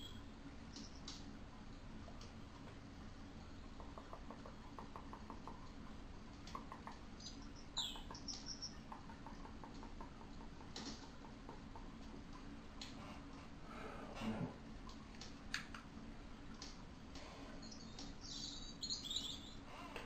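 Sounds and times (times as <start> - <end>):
steady low hum: 0.0 - 20.0
high chirp: 7.2 - 8.8, 17.6 - 19.6.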